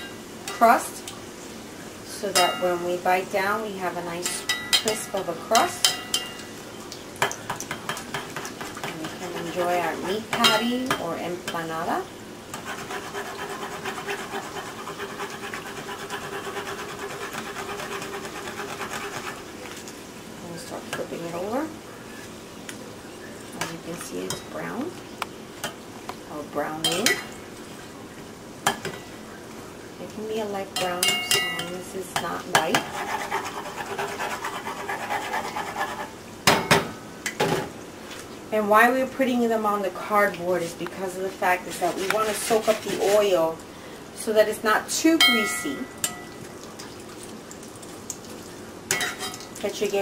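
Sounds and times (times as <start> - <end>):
deep-frying oil sizzling: 0.0 - 50.0
faint steady hum: 0.0 - 50.0
metal spoon scraping a pot: 12.6 - 19.4, 32.6 - 36.1.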